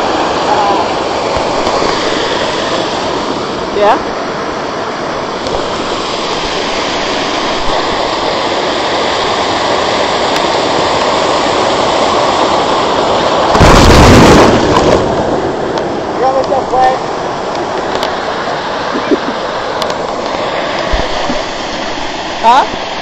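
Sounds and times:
waterfall rushing: 0.0s - 23.0s
loud blast of noise: 13.5s - 15.5s.

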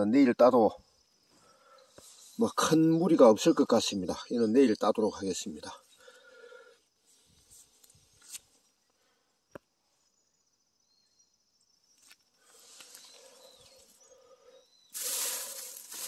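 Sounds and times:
leaf litter rustling: 14.9s - 16.0s
footsteps crunching through litter: 15.0s - 16.0s.

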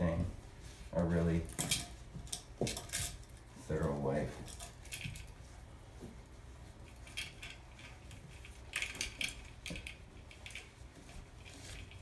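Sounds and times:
metal bead chain rattling: 1.5s - 3.4s, 4.4s - 5.4s, 6.9s - 10.8s.

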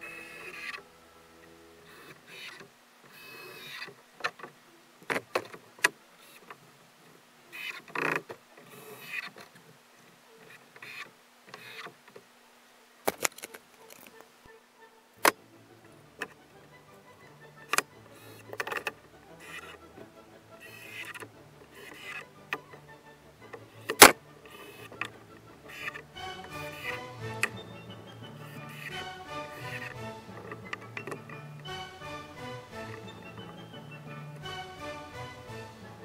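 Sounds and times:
faint steady hum: 0.0s - 36.0s
scraping and rustling: 20.6s - 22.7s, 23.5s - 27.5s.

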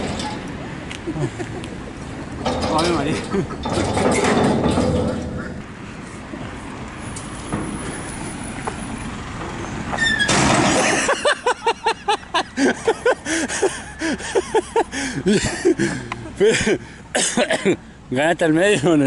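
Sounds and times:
street traffic passing: 0.0s - 19.0s
playground platform squeaking: 9.9s - 11.0s.

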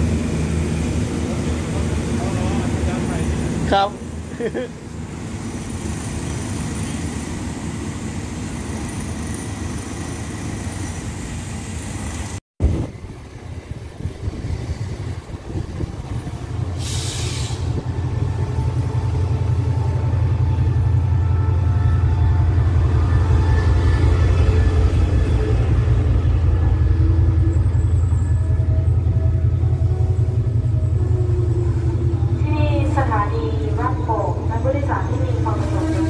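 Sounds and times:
diesel train rumbling: 0.0s - 36.0s
locomotive engine rumble: 12.2s - 36.0s.

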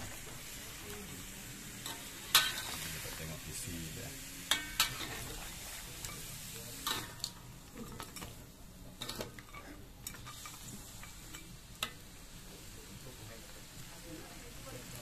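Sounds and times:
metal spatula scraping wok: 0.0s - 3.2s, 4.4s - 8.4s, 9.0s - 11.5s
food frying sizzle: 0.0s - 15.0s.

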